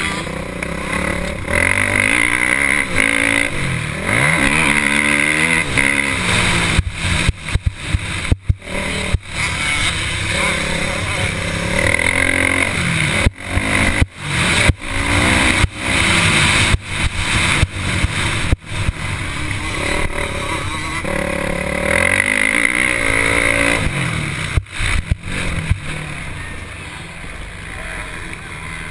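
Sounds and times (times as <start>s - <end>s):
motocross bike engine revving: 0.0s - 28.9s.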